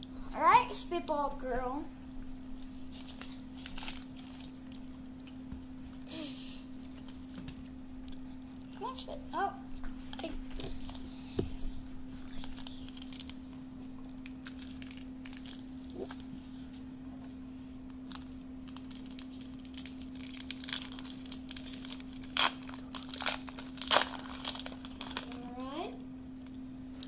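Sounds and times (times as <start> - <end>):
steady low hum: 0.0 - 27.0
foil wrapper tearing and crinkling: 2.9 - 4.8, 12.3 - 13.4, 14.2 - 16.3, 17.9 - 25.6.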